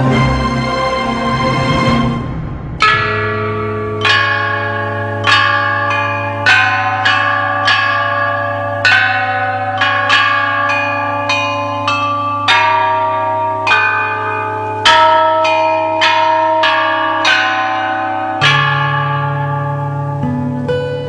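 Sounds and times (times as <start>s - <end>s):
low drone: 0.0s - 6.4s
chime bells melody: 2.8s - 21.0s.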